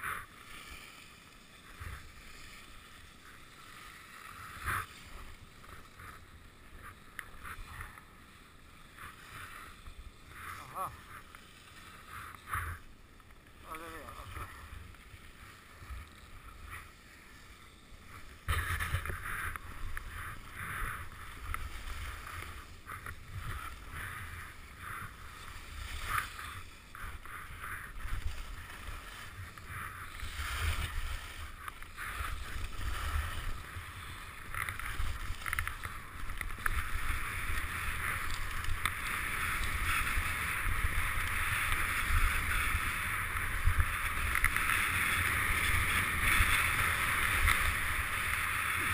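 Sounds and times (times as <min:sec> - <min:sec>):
skis scraping on snow: 0:00.0 - 0:48.9
wind rumbling on microphone: 0:13.6 - 0:48.9.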